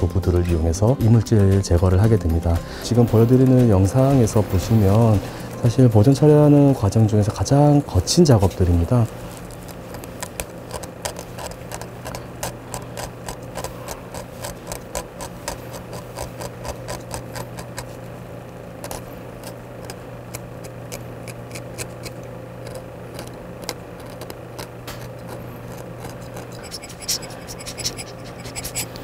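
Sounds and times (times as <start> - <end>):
steady low hum: 0.0 - 29.0
scalpel scraping metal: 24.9 - 29.0.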